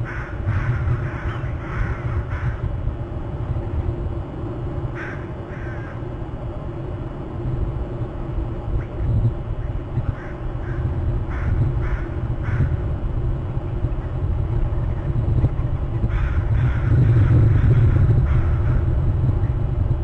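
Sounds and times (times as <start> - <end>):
crows cawing: 0.0 - 2.6, 5.0 - 6.1, 10.1 - 12.8, 16.1 - 18.9
low rumble: 0.0 - 20.0.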